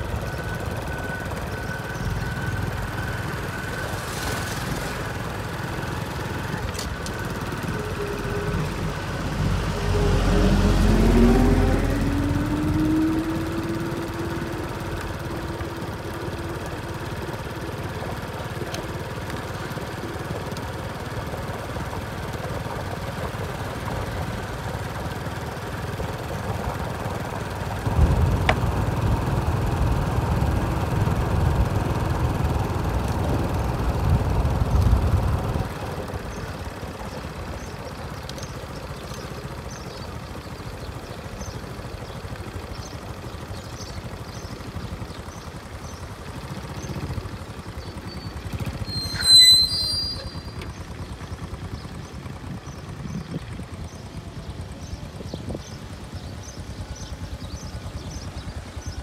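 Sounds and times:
machinery engines running: 0.0s - 59.0s
loud low rumble: 7.7s - 15.5s, 27.8s - 32.9s
engine revving up: 8.5s - 15.0s.

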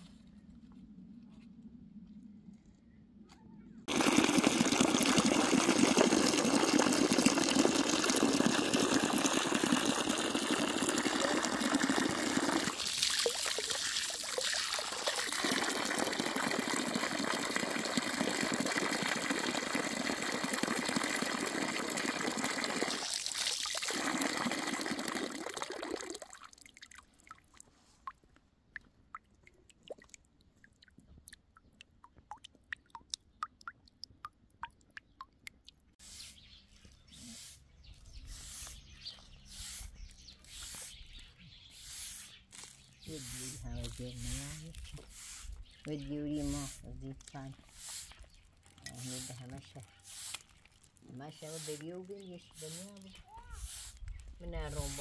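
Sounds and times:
running water: 3.9s - 27.6s, 43.1s - 55.0s.

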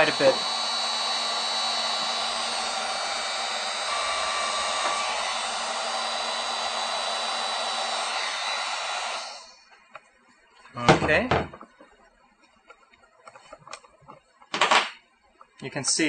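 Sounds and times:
heat gun fan hiss: 0.0s - 8.2s.

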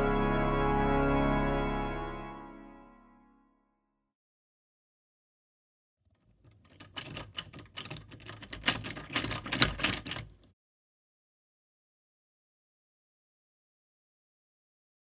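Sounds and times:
metal doorknob rattling: 6.2s - 10.5s.

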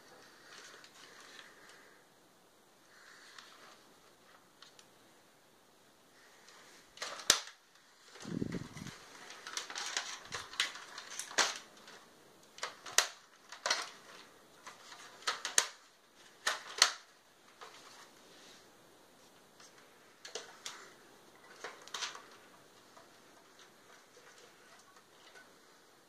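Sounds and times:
sharp plastic clicks: 7.0s - 17.8s.

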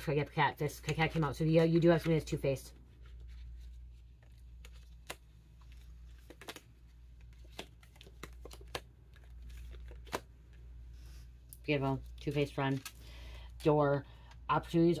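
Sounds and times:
low steady hum: 0.0s - 15.0s
cards clicking and tapping: 0.7s - 2.4s, 4.2s - 10.6s.

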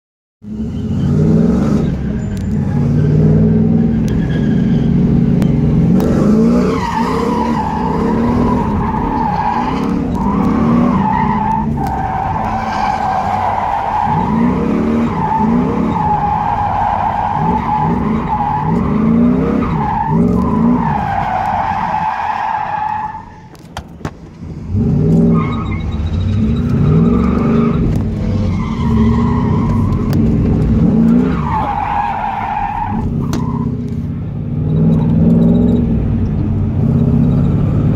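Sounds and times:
car engine revving hard: 0.5s - 1.8s, 5.1s - 22.1s, 24.6s - 32.0s
tyres squealing: 6.5s - 23.7s, 25.2s - 33.8s.

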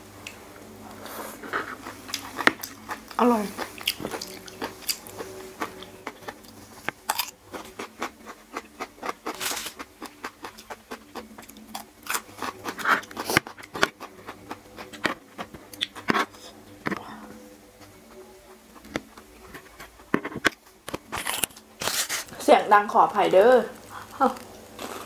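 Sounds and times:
chewing radish: 1.4s - 16.4s.

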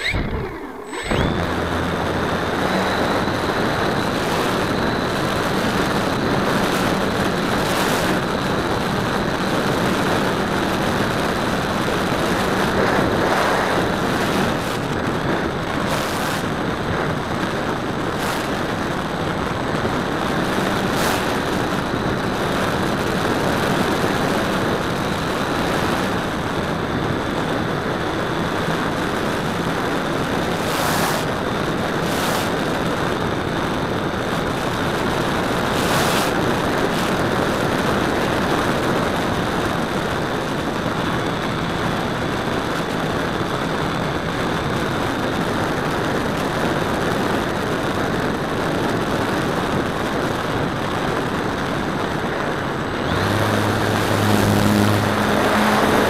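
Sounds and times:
low hum: 0.0s - 7.4s, 52.6s - 56.0s
rushing airflow: 0.0s - 17.4s, 29.4s - 39.0s, 50.2s - 56.0s
propeller and motor running: 0.0s - 56.0s.

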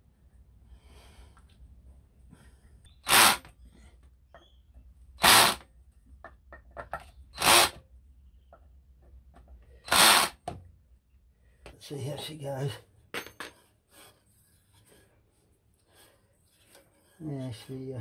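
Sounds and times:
cordless drill running: 3.0s - 3.5s, 5.2s - 5.6s, 7.4s - 7.8s, 9.9s - 10.4s.

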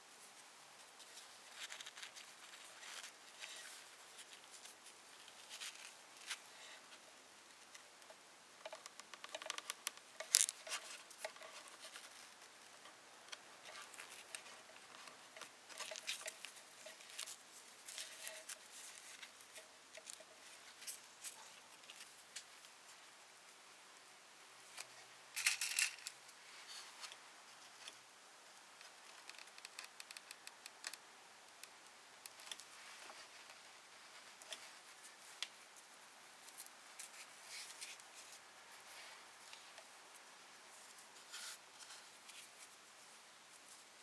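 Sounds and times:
cloth rustling and scratching: 0.2s - 7.8s, 8.6s - 22.6s.

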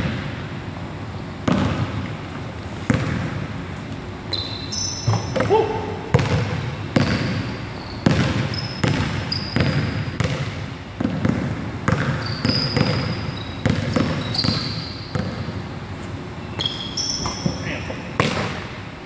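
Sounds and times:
basketball bouncing on wooden floor: 1.4s - 2.0s, 2.9s - 3.4s, 5.0s - 15.5s, 18.2s - 18.6s
sneakers squeaking on floor: 4.2s - 18.6s.

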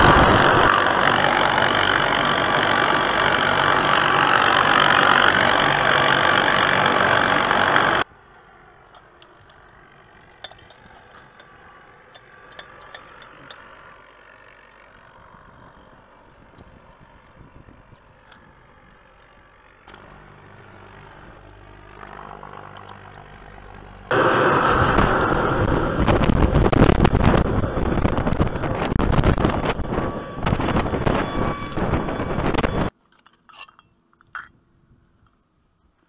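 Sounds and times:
low engine hum: 0.0s - 32.9s.

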